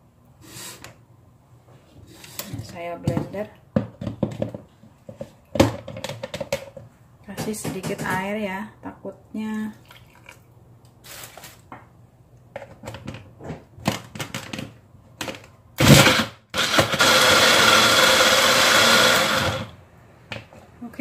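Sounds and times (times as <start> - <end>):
blender handling clicks and knocks: 5.6 - 6.8
blender motor grinding: 15.8 - 19.8.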